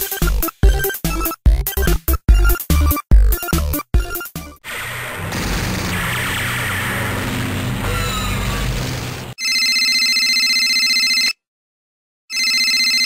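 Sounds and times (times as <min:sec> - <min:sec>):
noisy music and sound effects: 0:03.4 - 0:09.4
telephone electronic trilling ring: 0:09.4 - 0:11.4.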